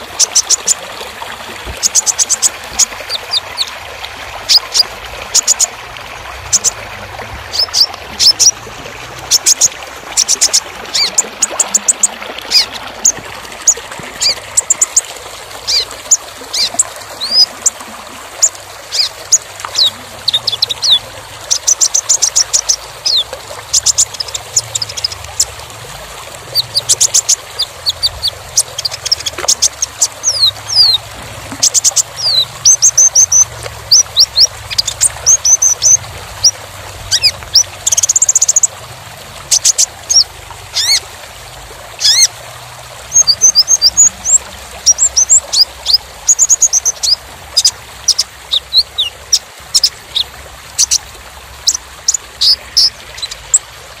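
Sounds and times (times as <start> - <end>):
bird chirping and whistling: 7.5 - 8.6, 9.3 - 15.0, 26.6 - 31.0, 31.6 - 36.0.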